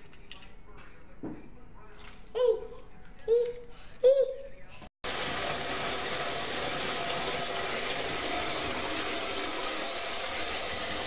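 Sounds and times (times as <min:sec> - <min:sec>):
water pouring from faucet into tub: 0:05.0 - 0:11.0.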